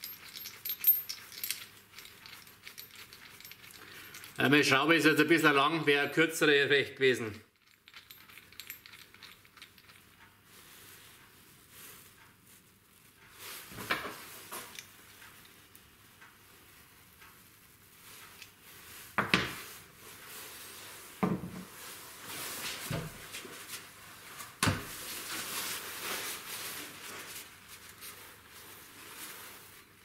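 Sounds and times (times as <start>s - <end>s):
paper towel rustling: 21.8s - 30.0s.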